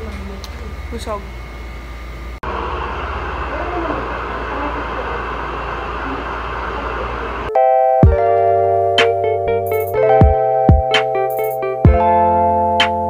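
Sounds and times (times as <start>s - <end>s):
hair dryer blowing: 2.5s - 7.5s
background music: 7.5s - 13.0s.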